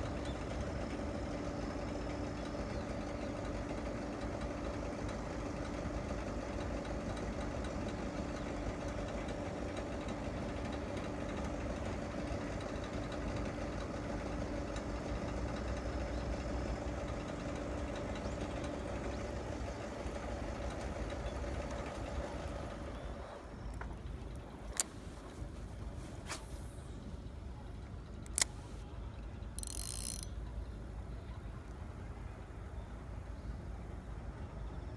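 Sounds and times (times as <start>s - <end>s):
sharp clicks: 28.2s - 30.6s.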